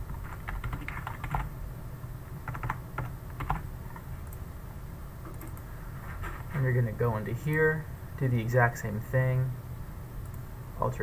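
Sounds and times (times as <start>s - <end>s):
typing on computer keyboard: 0.2s - 1.5s, 2.4s - 3.6s.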